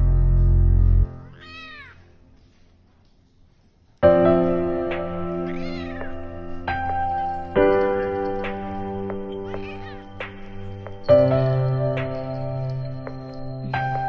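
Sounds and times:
background music: 0:00.0 - 0:02.4, 0:04.0 - 0:14.0
cat meowing: 0:01.3 - 0:02.1, 0:05.4 - 0:06.6, 0:09.3 - 0:10.2.

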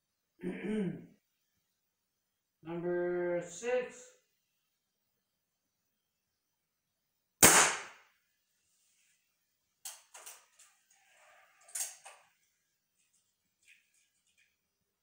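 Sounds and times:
air rifle shot crack: 0:07.4 - 0:08.0.

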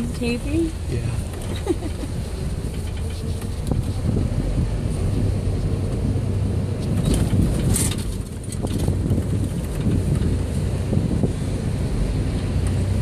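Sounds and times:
body and load rattling: 0:00.0 - 0:04.3, 0:06.8 - 0:11.3
vehicle engine running: 0:00.0 - 0:13.0.

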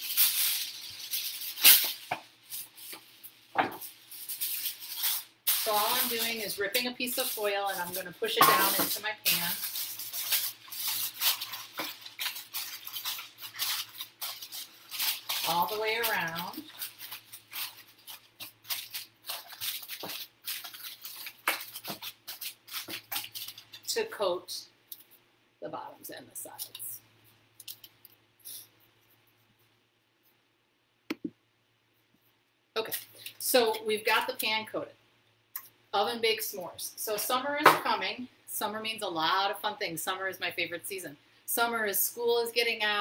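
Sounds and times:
foil ripping: 0:00.0 - 0:23.9
aluminum foil crinkling: 0:00.0 - 0:24.2, 0:27.6 - 0:28.7, 0:32.8 - 0:33.5.

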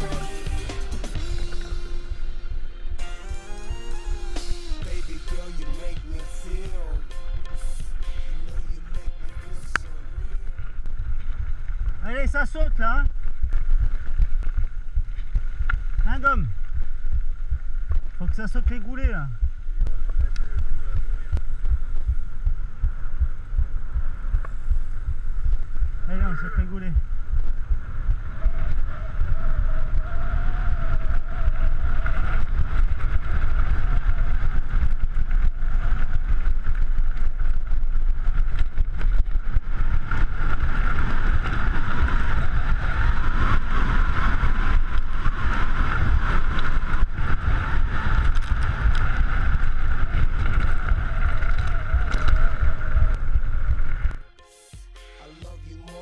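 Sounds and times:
steady high whine: 0:00.0 - 0:11.2
wind buffeting microphone: 0:05.0 - 0:54.2
bike rattling over stones: 0:10.2 - 0:23.0, 0:31.6 - 0:54.2.

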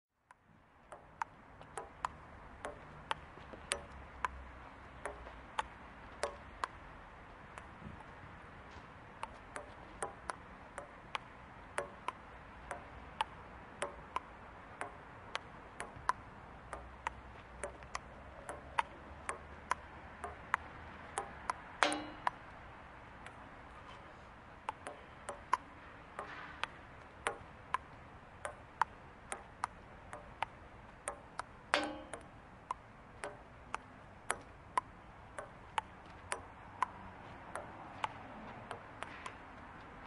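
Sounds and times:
ping-pong ball clicking off paddles: 0:00.2 - 0:40.0.

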